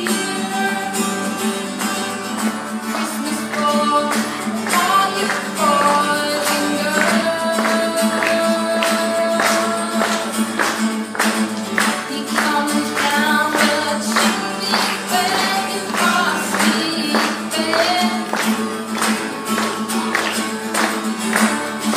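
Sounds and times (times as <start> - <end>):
boy singing: 0.0 - 1.4, 2.9 - 10.5, 11.9 - 18.4
acoustic guitar strumming: 0.0 - 21.9.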